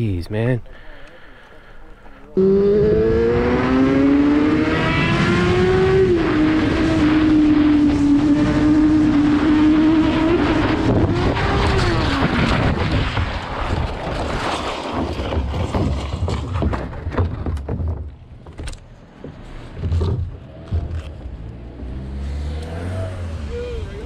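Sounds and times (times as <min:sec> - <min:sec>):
motorcycle engine at high revs: 0:02.4 - 0:12.7
motorcycle crash knocking and scraping: 0:10.5 - 0:21.2.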